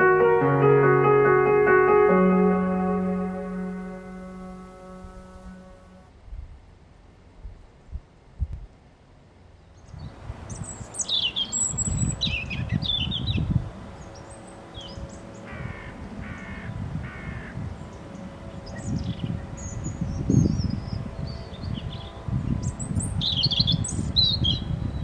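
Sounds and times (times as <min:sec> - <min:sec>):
crow cawing: 0:15.5 - 0:17.6.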